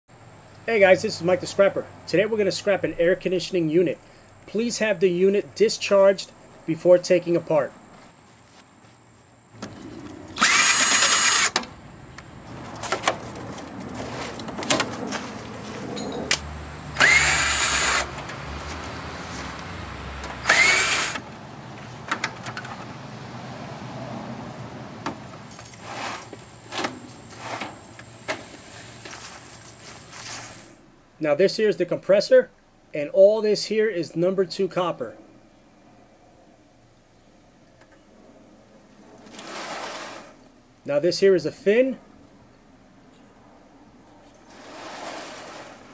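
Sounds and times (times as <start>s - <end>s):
power drill spinning up: 9.6s - 11.6s, 16.9s - 18.2s, 20.4s - 21.2s.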